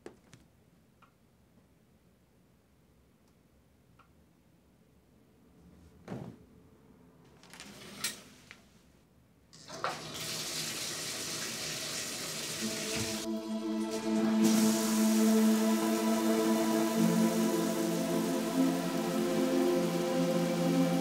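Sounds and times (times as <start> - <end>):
bathtub water running: 9.6 - 20.7
low held music tones: 12.6 - 21.0.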